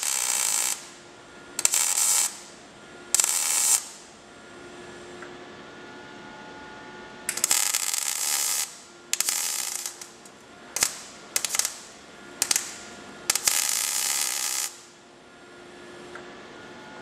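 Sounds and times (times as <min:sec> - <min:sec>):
welder arc crackling: 0:00.0 - 0:01.0, 0:01.6 - 0:04.1, 0:07.3 - 0:15.0.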